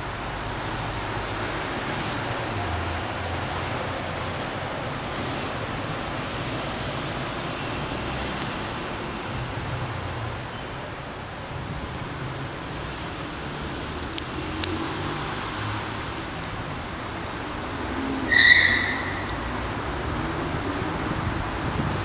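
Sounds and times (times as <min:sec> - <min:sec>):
traffic rumble: 0:00.0 - 0:22.0
high-pitched squeal: 0:18.0 - 0:19.5.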